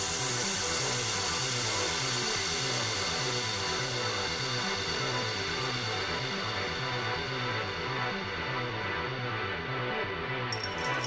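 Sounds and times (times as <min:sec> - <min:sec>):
music with repeating bass line: 0:00.0 - 0:11.0.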